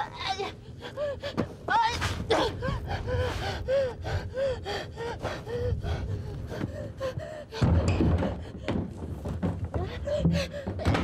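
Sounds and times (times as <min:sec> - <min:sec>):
person panting and gasping: 0:00.7 - 0:09.0.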